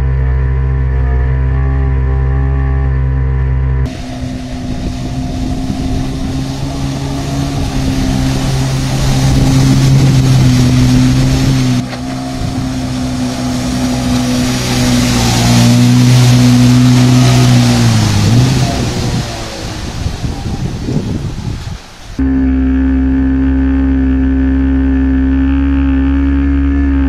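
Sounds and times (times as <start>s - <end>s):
jet ski engine running: 0.0s - 27.0s
water spray hissing: 3.9s - 22.6s.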